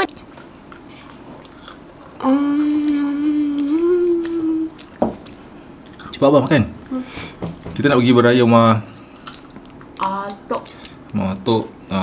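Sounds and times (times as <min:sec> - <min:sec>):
person humming: 0:02.2 - 0:04.8.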